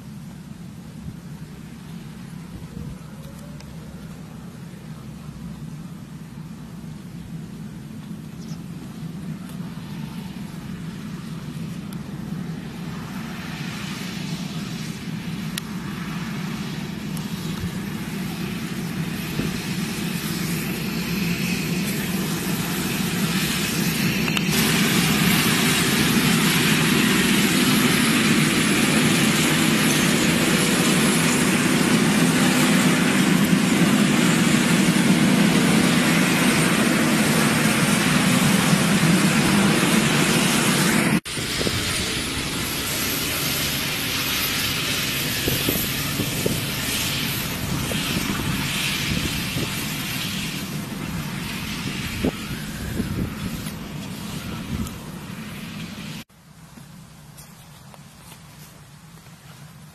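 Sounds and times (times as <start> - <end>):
tractor engine drone: 0.0 - 59.9
tyres and tines rumbling in soil: 15.2 - 59.9.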